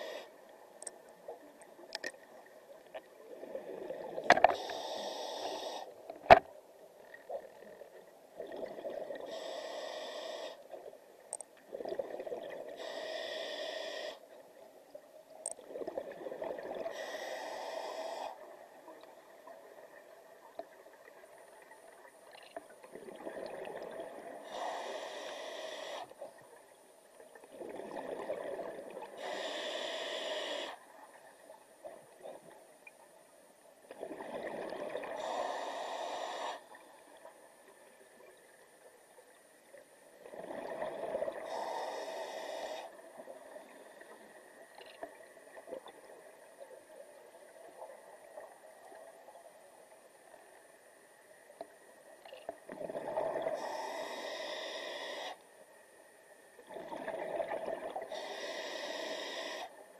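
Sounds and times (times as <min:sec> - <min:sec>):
diver breathing through regulator: 0:04.4 - 0:06.0, 0:09.2 - 0:10.6, 0:12.8 - 0:14.3, 0:16.9 - 0:18.5, 0:24.4 - 0:26.2, 0:29.2 - 0:30.8, 0:35.0 - 0:36.8, 0:41.3 - 0:43.0, 0:53.3 - 0:55.4, 0:58.0 - 0:59.8.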